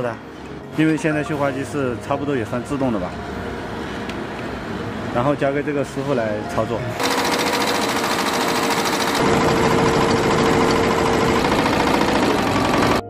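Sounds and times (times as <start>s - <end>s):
embroidery machine stitching: 7.0s - 13.0s.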